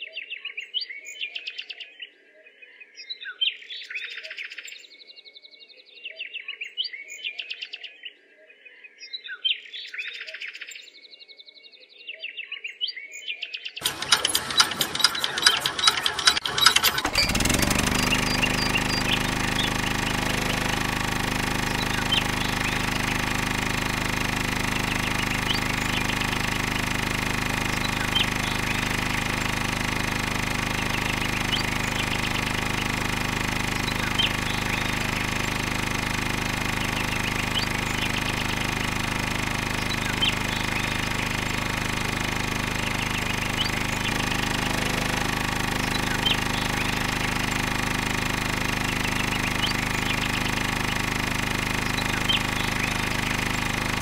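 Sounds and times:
rapid crackling clicks: 13.8s - 54.0s
small electric motor humming: 13.8s - 54.0s.

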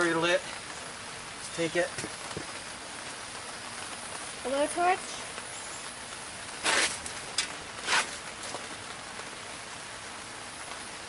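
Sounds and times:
rain falling on a canopy: 0.0s - 11.0s.

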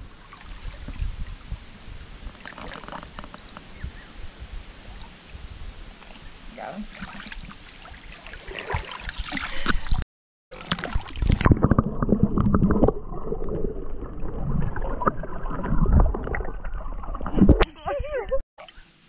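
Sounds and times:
muffled underwater bubbles: 10.6s - 17.7s.

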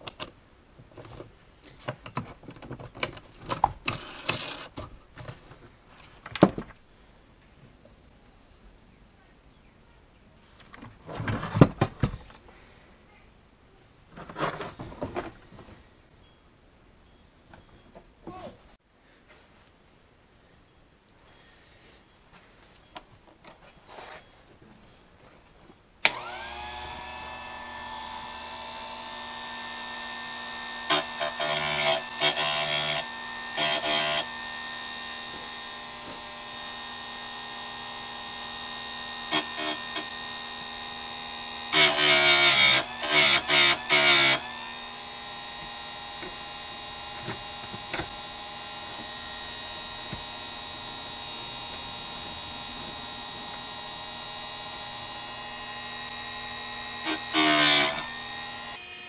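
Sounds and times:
grinder motor humming: 26.1s - 59.0s.

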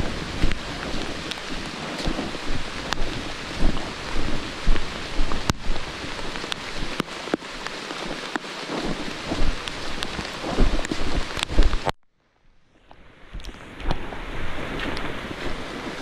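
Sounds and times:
low rumbling on microphone: 0.0s - 7.0s, 8.7s - 11.9s
rain on foliage: 0.0s - 12.0s, 12.8s - 16.0s.

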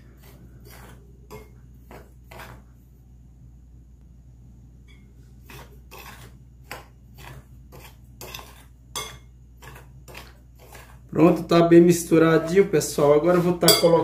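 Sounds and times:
spoon scraping glass bowl: 0.0s - 2.7s, 4.9s - 11.4s, 12.4s - 14.0s.

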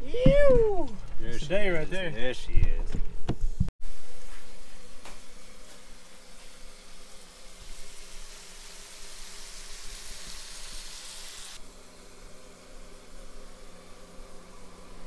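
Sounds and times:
fish sizzling in hot oil: 3.8s - 11.7s.

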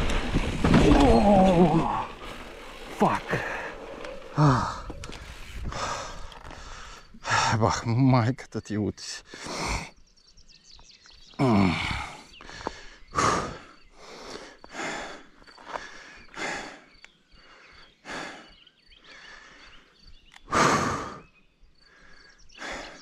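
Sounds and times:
person breathing hard: 3.4s - 7.5s, 11.8s - 23.0s.

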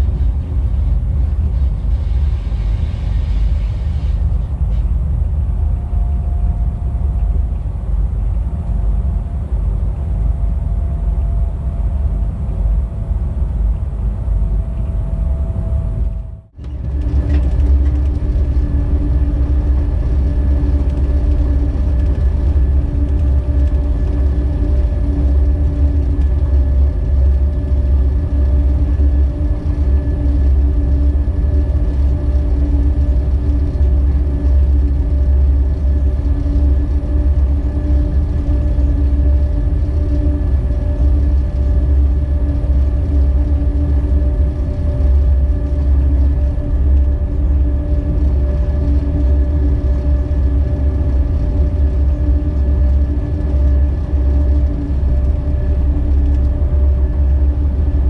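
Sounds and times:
electric locomotive rumbling: 0.0s - 58.0s
humming tones: 0.0s - 58.0s.

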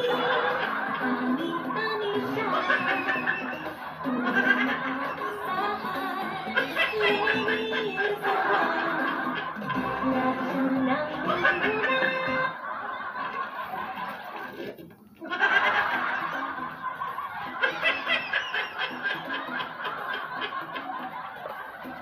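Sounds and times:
laughter through a speaker: 0.0s - 22.0s.

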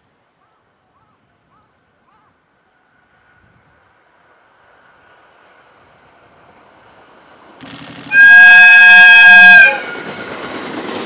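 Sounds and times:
train running rumble: 3.6s - 11.0s
train horn blast: 8.0s - 10.3s.

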